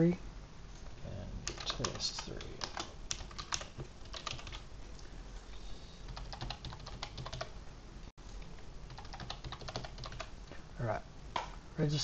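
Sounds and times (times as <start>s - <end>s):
computer keyboard typing: 1.4s - 4.6s, 6.1s - 7.5s, 8.9s - 10.4s.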